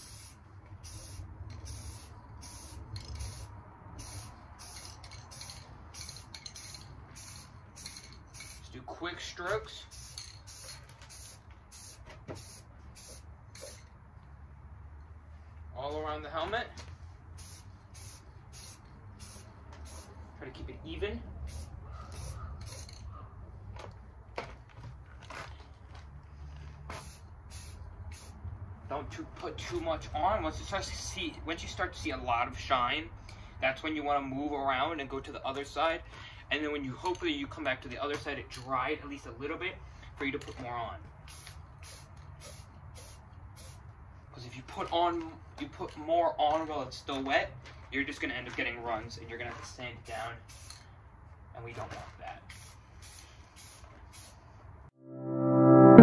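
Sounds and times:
aerosol spray can hissing: 0:00.0 - 0:08.7, 0:09.9 - 0:13.8, 0:17.4 - 0:20.2, 0:21.5 - 0:22.9, 0:41.3 - 0:43.8, 0:52.5 - 0:54.4.

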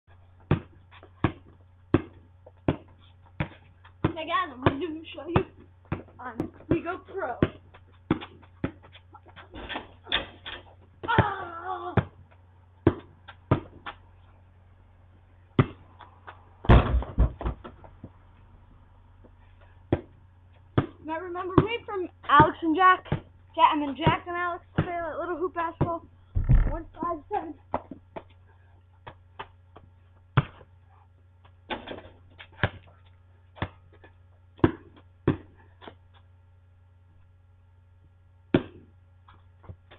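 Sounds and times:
low electrical hum: 0:00.1 - 0:39.9
basketball thuds: 0:00.4 - 0:11.3, 0:12.8 - 0:13.9, 0:15.6 - 0:15.8, 0:16.6 - 0:17.9, 0:25.8 - 0:27.1, 0:31.7 - 0:32.9, 0:34.6 - 0:35.6, 0:38.5 - 0:38.9
ball knocking on hoop: 0:16.7 - 0:17.6, 0:26.4 - 0:26.9.

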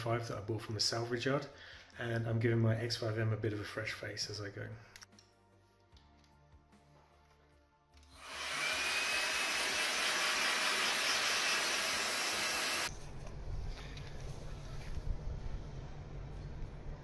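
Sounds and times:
heat gun fan rushing: 0:08.1 - 0:12.9.

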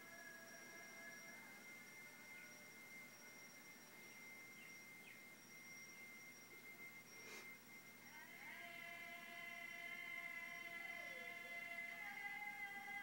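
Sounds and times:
faint chirps: 0:00.0 - 0:13.0
high-pitched electronic tones: 0:00.0 - 0:13.0
faint hiss: 0:07.1 - 0:08.2.

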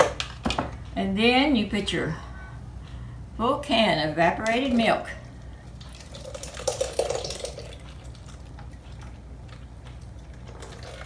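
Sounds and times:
liquid pouring into a bowl: 0:05.6 - 0:11.0.

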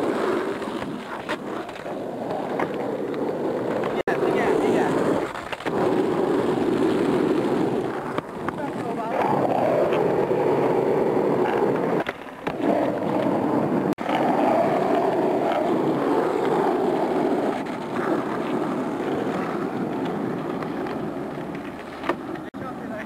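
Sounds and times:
skateboard wheels rolling on asphalt: 0:00.0 - 0:23.0.

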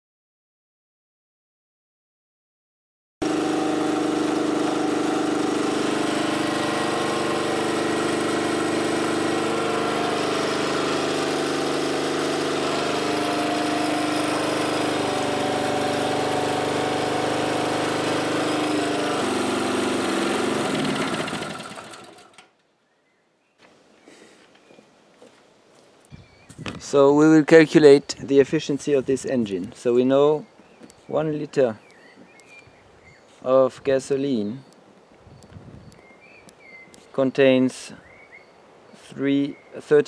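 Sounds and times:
generator engine running: 0:03.2 - 0:22.5.

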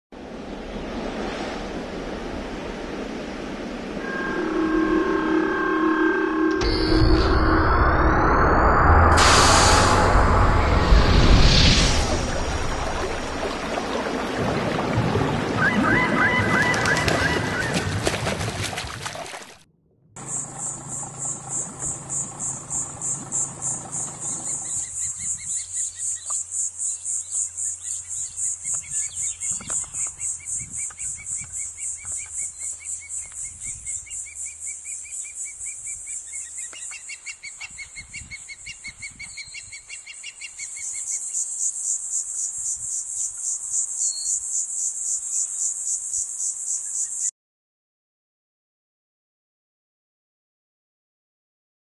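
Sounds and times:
high pulsing insect trill: 0:20.2 - 0:28.7
lower pulsing insect call: 0:20.2 - 0:47.3.

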